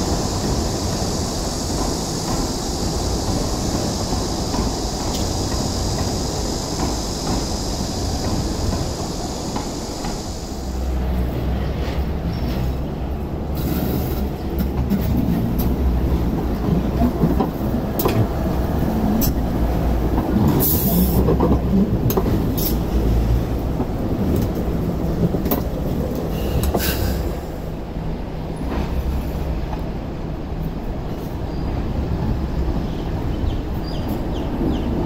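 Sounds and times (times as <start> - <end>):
train rumbling on track: 0.0 - 35.0
wheels clicking over rail joints: 13.6 - 27.1.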